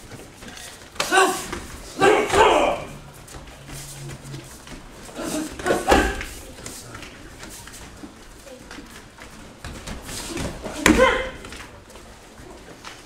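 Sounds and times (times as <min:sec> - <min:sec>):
person shouting sharply: 0:01.0 - 0:03.0, 0:10.8 - 0:11.4.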